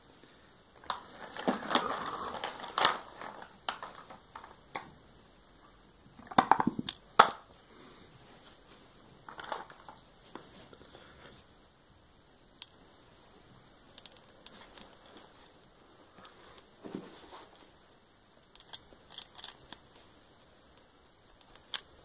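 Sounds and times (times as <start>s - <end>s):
soft rustle: 7.6s - 11.6s, 14.0s - 18.0s
sharp plastic clacks: 18.5s - 19.9s.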